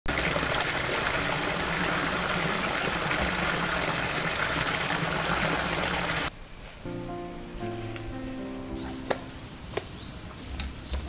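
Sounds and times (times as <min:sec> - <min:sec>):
stream of water pouring into pool: 0:00.1 - 0:06.3.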